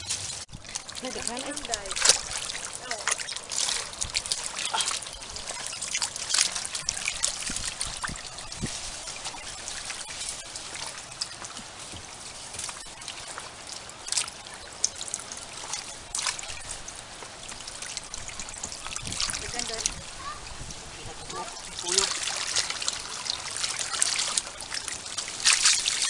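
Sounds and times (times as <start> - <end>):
hands splashing in shallow water: 0.0 - 12.0, 21.7 - 26.0.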